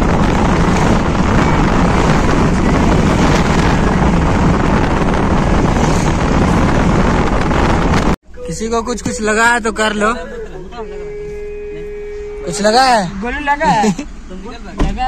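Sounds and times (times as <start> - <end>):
wind buffeting microphone: 0.0 - 8.2
road and engine noise: 0.0 - 15.0.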